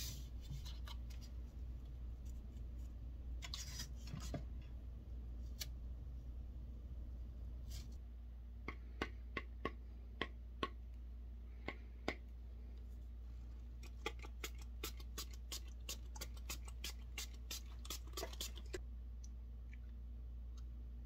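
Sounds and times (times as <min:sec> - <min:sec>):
pump-spray bottle spritzing: 0:14.1 - 0:18.8.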